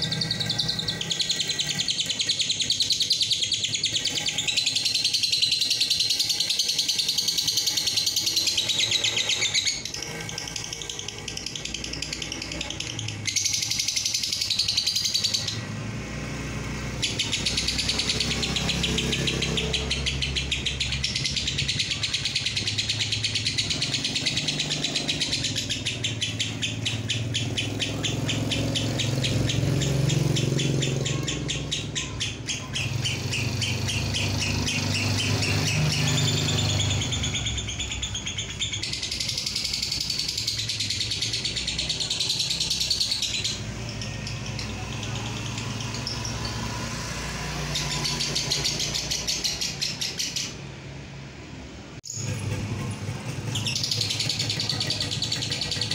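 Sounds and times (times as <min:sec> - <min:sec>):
lovebird chattering trill: 0:00.0 - 0:15.7, 0:16.9 - 0:46.8, 0:52.1 - 0:55.9.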